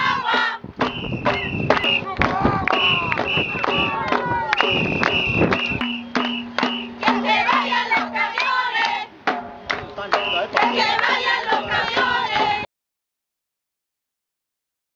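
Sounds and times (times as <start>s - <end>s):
crowd chanting: 0.0s - 0.6s, 1.3s - 9.2s, 10.0s - 12.7s
rhythmic clapping: 0.0s - 12.7s.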